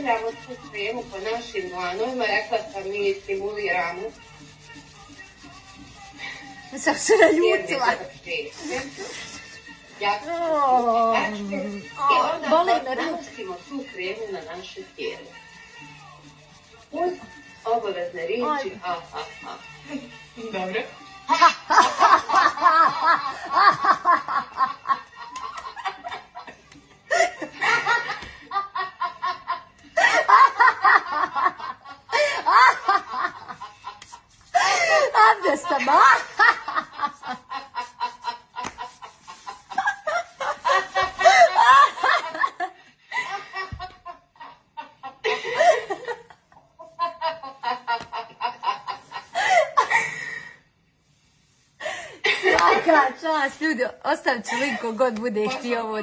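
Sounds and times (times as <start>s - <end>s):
women laughing hard: 21.3s - 50.6s.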